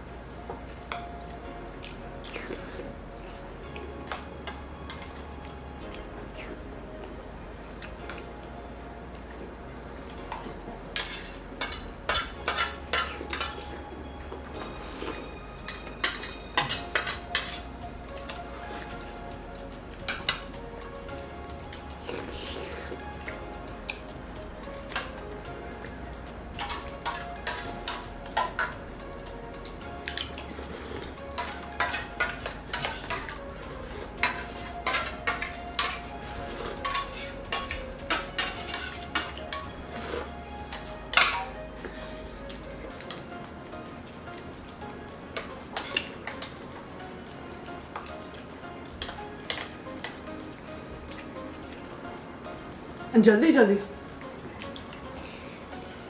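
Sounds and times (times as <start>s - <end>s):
spoons clinking on steel plates: 10.3s - 13.8s, 14.6s - 18.9s, 20.1s - 20.5s, 26.6s - 28.8s, 29.6s - 42.2s, 47.9s - 50.3s.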